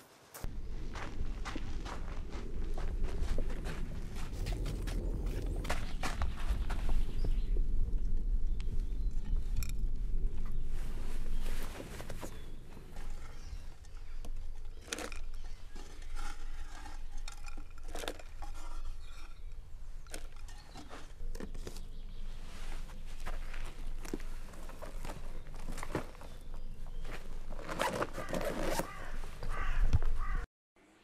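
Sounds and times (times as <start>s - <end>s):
low rumble: 0.4s - 20.0s.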